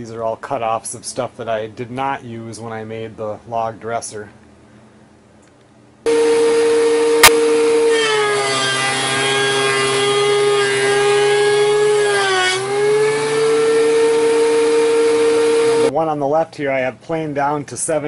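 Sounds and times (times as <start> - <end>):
thickness planer high whine: 6.1 - 15.9
sharp click: 7.2 - 7.4.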